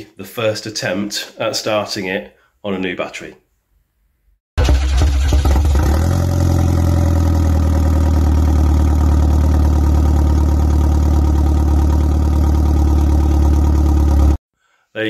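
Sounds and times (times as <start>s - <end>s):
car engine idling: 6.5s - 14.4s.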